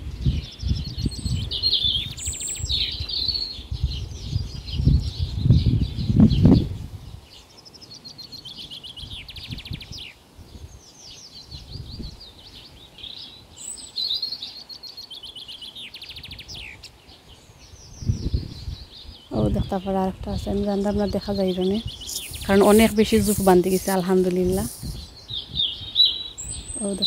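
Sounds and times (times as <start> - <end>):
songbirds singing and chirping: 0.0 - 27.0.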